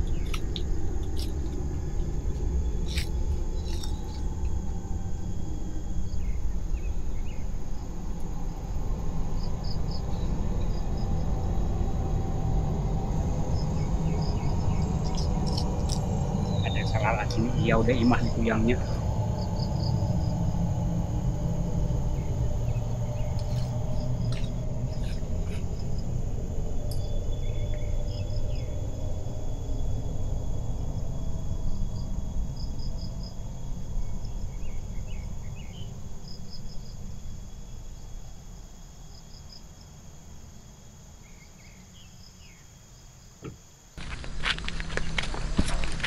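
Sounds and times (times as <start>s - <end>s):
low rumble: 0.0s - 35.4s
crickets chirring: 0.0s - 46.0s.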